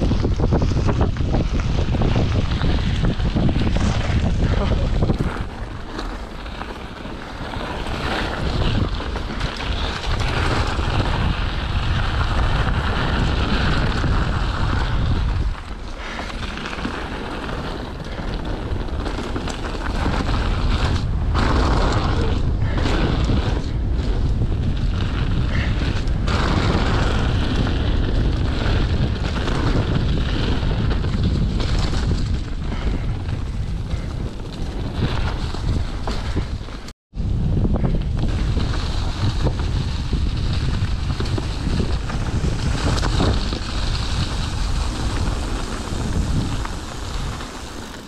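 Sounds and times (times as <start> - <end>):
deep rumble: 0.0 - 16.8
bike clicks and rattles: 0.0 - 36.9, 37.7 - 48.0
wind rushing over microphone: 0.0 - 48.0.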